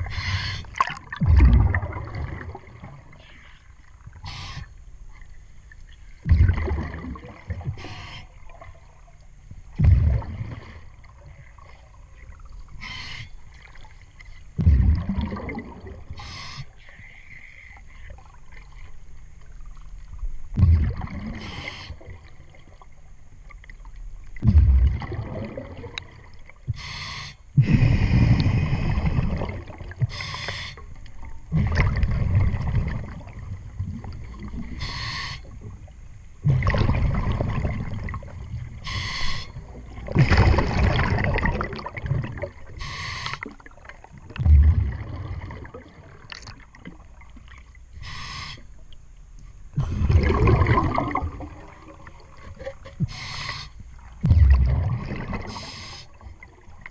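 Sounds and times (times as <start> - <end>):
exhaled bubbles rumbling: 0.0 - 4.4, 6.2 - 12.8, 13.5 - 16.2, 19.4 - 23.7, 24.3 - 26.8, 27.6 - 30.2, 30.9 - 47.7, 49.7 - 53.2, 53.8 - 56.9
regulator inhalation hiss: 26.7 - 28.0, 30.1 - 30.8, 34.8 - 35.5, 38.8 - 39.6, 42.8 - 43.4, 48.0 - 48.7, 53.1 - 53.8, 55.5 - 56.2.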